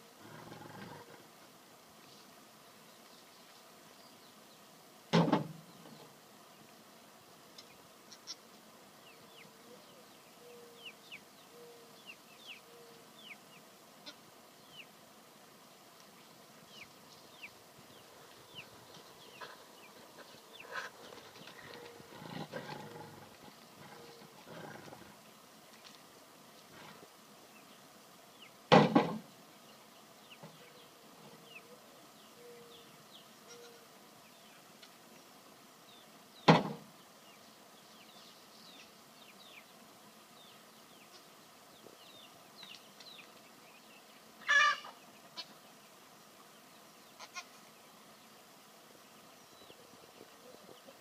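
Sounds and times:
faint bird chirps: 9.0 - 13.7, 29.6 - 34.6
dog and goat calls: 44.4 - 45.5.

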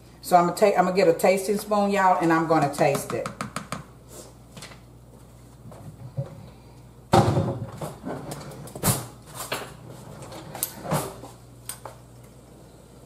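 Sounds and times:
kitchen drawer opening: 7.5 - 11.2.

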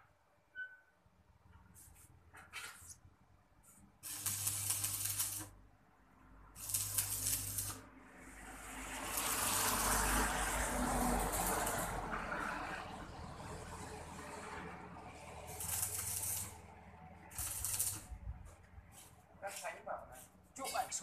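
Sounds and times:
welding arc crackling and hissing: 4.0 - 5.6, 6.6 - 12.5, 15.2 - 18.2
welding sputters: 4.0 - 5.6, 6.6 - 12.7, 14.4 - 18.2.

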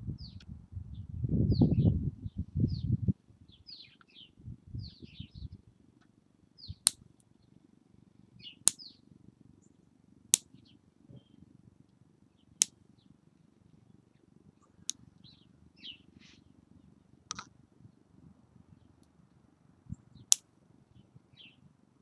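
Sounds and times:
birds chirping: 0.2 - 5.6, 6.6 - 7.6, 8.4 - 9.8, 10.5 - 11.5, 12.3 - 18.0, 20.9 - 21.7.

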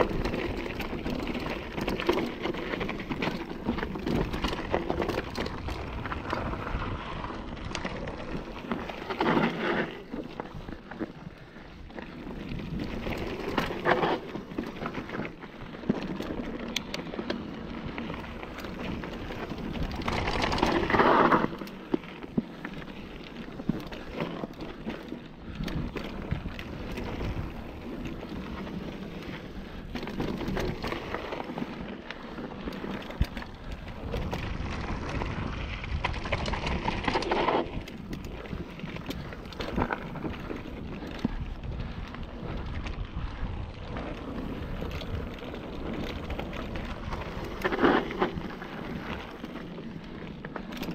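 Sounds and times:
bike tyres crunching over dirt: 0.0 - 50.9.

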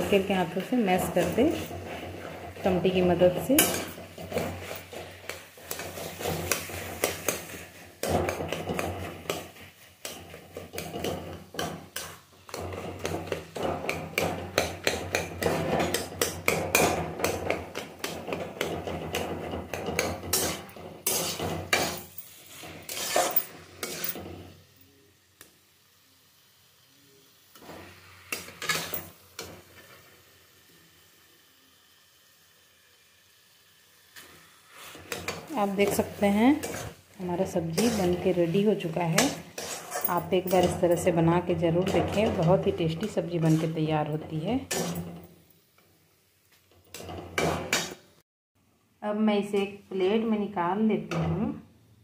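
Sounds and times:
metal spatula scraping a pan: 0.0 - 24.7, 27.5 - 30.1, 34.2 - 45.3, 46.7 - 48.2.

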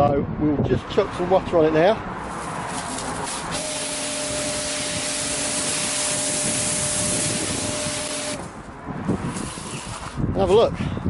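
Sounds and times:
pressure washer spraying: 2.4 - 8.6, 9.2 - 10.2
pump humming: 3.3 - 8.6.

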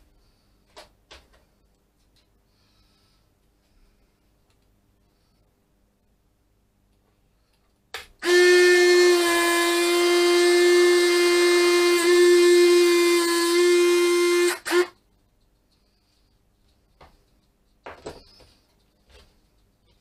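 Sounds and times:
electric motor whine: 8.2 - 14.9.

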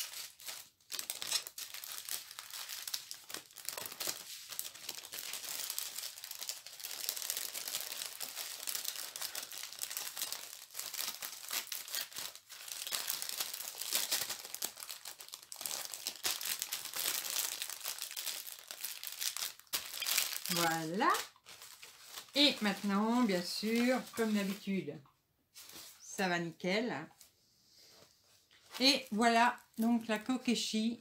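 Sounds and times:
plastic bags crinkling: 0.0 - 24.8.

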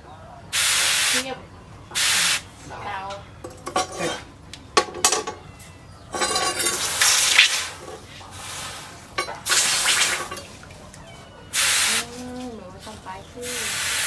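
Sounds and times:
water sloshing: 9.1 - 11.2
hot blade hissing in water: 9.5 - 10.3.

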